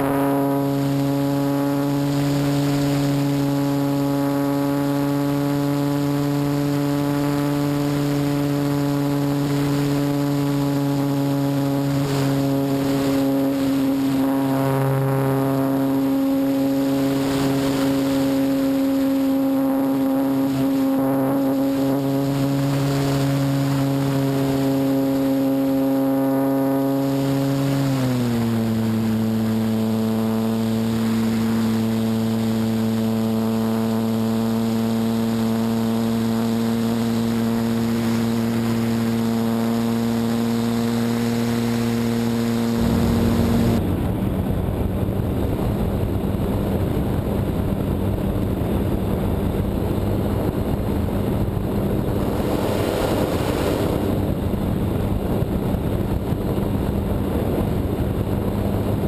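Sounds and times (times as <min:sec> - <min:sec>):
model plane motor humming: 0:00.0 - 0:59.0
wind noise on microphone: 0:00.0 - 0:59.0.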